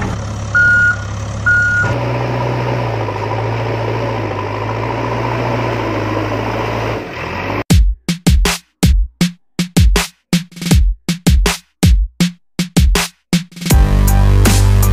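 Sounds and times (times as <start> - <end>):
heavy vehicle engine running: 0.0 - 7.7
reversing beeps: 0.6 - 2.0.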